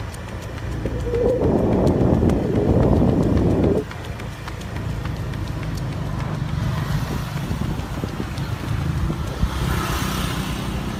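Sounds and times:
wind buffeting microphone: 0:00.0 - 0:10.9.

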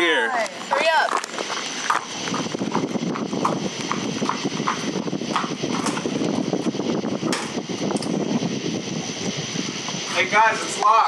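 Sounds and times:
high-pitched hum: 0:00.0 - 0:11.0
footsteps on concrete: 0:00.4 - 0:08.1.

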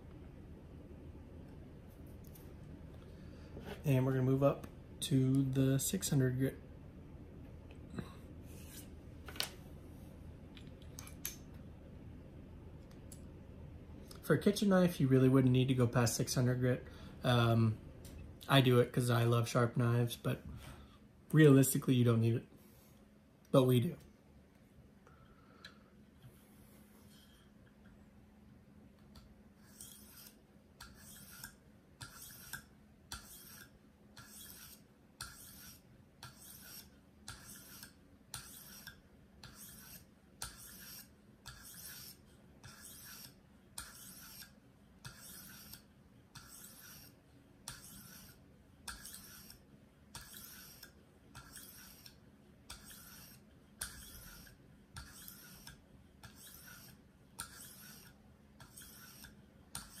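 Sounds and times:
sharpening stone rasping on knife: 0:29.6 - 1:00.0.

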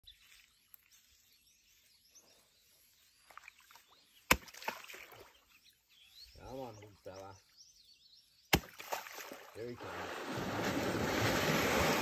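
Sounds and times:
water splashing: 0:03.3 - 0:05.4, 0:08.5 - 0:12.0
meat slapping on water: 0:04.3 - 0:05.3, 0:08.5 - 0:09.5.

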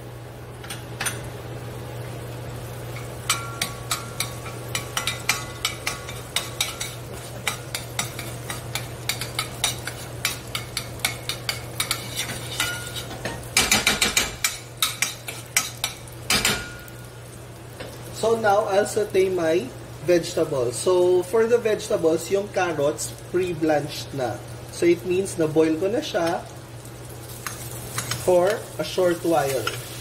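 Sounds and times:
utensil scraping a metal pan: 0:03.9 - 0:13.3.

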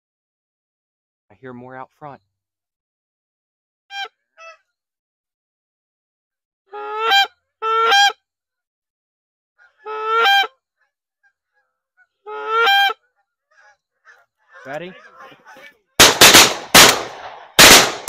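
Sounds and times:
goose honks: 0:06.8 - 0:08.2, 0:09.6 - 0:10.6, 0:12.0 - 0:16.0.

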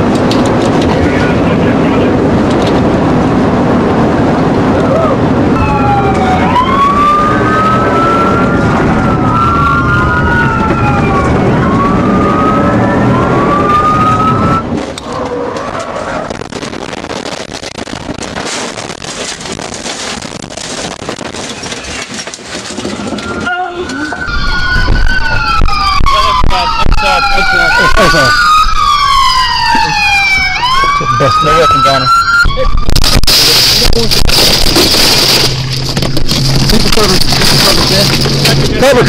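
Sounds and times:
police sirens wailing: 0:00.0 - 0:18.0, 0:21.4 - 0:39.0
car engine and road noise: 0:00.0 - 0:39.0
rough rushing noise: 0:14.2 - 0:23.2, 0:32.8 - 0:39.0.

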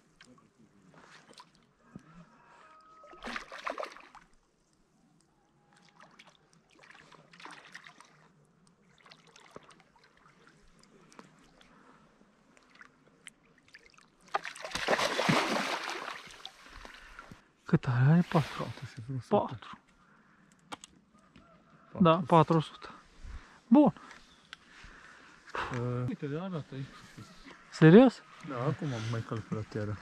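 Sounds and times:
water sloshing and splashing: 0:03.0 - 0:04.4, 0:05.7 - 0:17.4.

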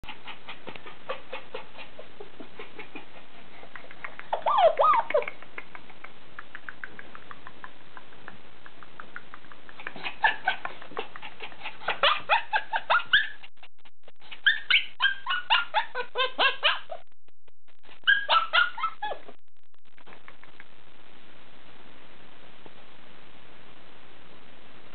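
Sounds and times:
puppy yelping: 0:04.3 - 0:05.3, 0:09.8 - 0:13.6, 0:14.2 - 0:17.0, 0:18.0 - 0:19.2.

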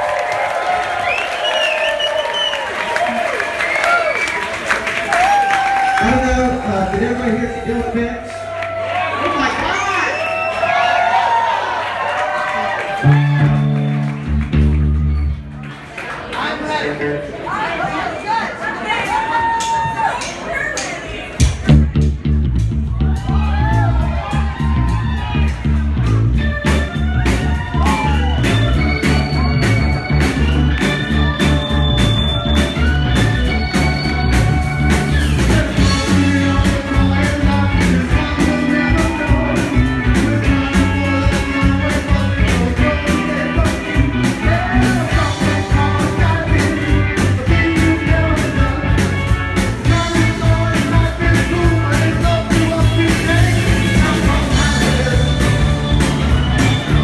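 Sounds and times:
live rock band playing: 0:12.7 - 0:16.0, 0:21.3 - 0:57.0
man singing: 0:35.2 - 0:56.3.

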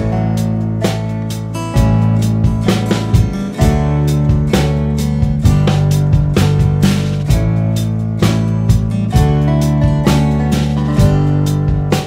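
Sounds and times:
background music with beat: 0:00.0 - 0:12.0.

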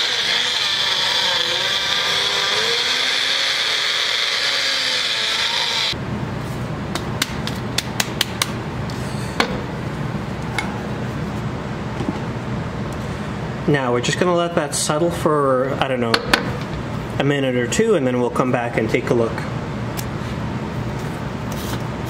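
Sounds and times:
blender motor running: 0:00.0 - 0:06.0.

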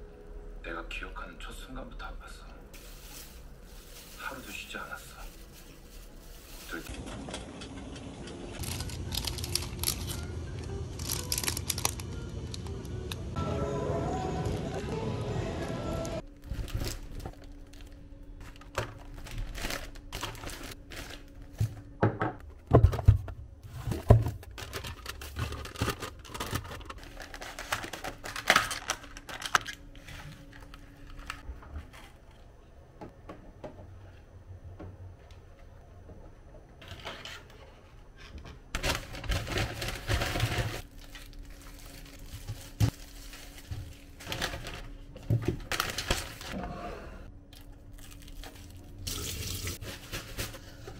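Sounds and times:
plastic egg pack crinkling: 0:02.7 - 0:06.9, 0:08.6 - 0:12.8, 0:16.4 - 0:21.5, 0:24.1 - 0:31.4, 0:38.8 - 0:46.5
paper bag rustling: 0:02.7 - 0:07.2, 0:08.6 - 0:12.3, 0:16.3 - 0:21.7, 0:23.7 - 0:32.3, 0:38.7 - 0:46.6, 0:48.0 - 0:50.9
items clicking and knocking: 0:21.5 - 0:33.9.

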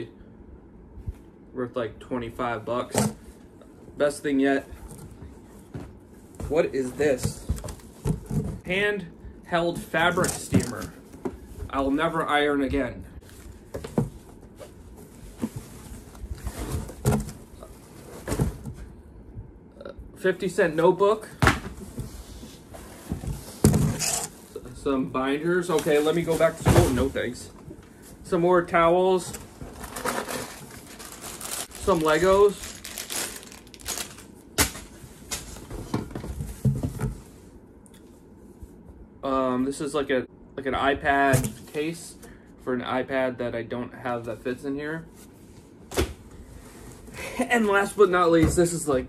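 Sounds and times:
packaging rustling: 0:29.2 - 0:35.7.

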